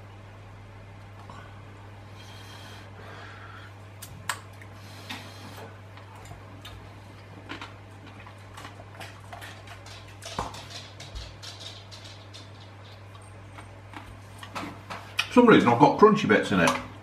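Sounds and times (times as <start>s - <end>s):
steady low hum: 0.0s - 17.0s
chewing crunchy pasta: 4.0s - 14.5s.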